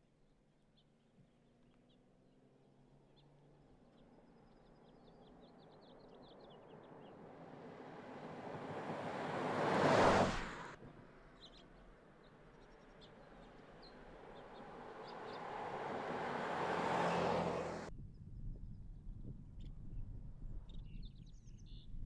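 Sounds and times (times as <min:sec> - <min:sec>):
car driving past: 0:05.3 - 0:11.6, 0:12.3 - 0:17.9.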